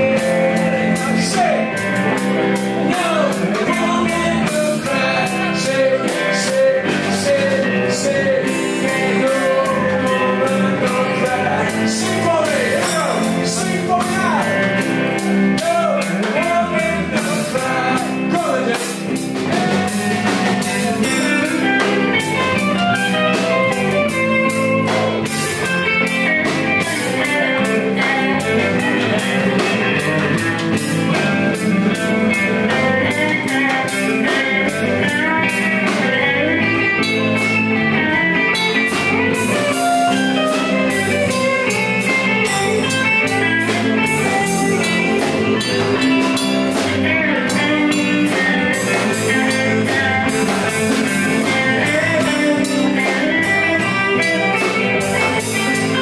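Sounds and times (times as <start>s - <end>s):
electric guitar: 0.0s - 56.0s
live rock band playing: 0.0s - 56.0s.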